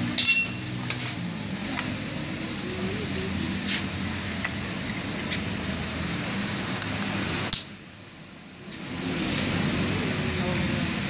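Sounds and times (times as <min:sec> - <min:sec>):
metal parts clinking: 0:00.1 - 0:01.0, 0:04.4 - 0:05.3.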